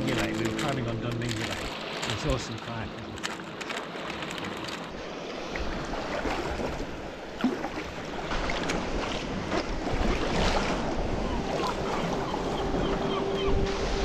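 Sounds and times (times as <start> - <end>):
waves washing against rocks: 0.0 - 11.1
paddle splashing water: 0.0 - 12.8
wind on microphone: 7.9 - 14.0.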